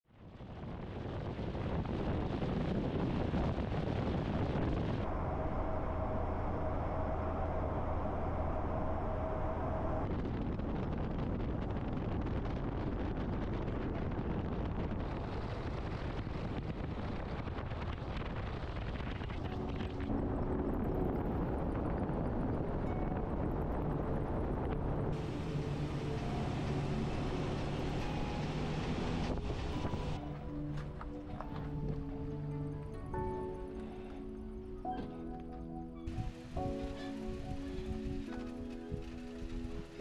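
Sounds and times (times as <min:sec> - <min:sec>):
wind rushing over microphone: 0:00.1 - 0:33.6
truck road noise: 0:05.0 - 0:10.5, 0:21.9 - 0:33.0.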